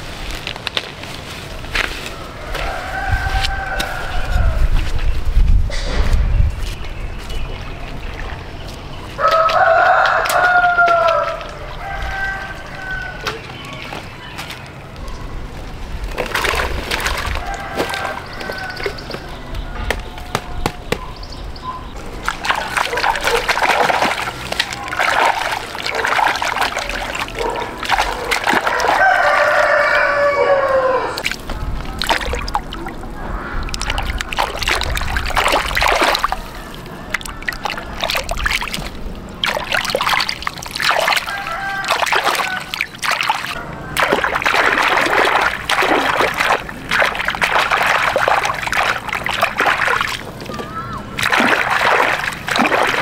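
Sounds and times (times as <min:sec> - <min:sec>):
water splashing and sloshing: 0:00.0 - 0:53.0
rooster crowing: 0:02.2 - 0:04.6, 0:09.2 - 0:13.4, 0:17.3 - 0:20.8, 0:28.6 - 0:31.2, 0:41.2 - 0:42.9.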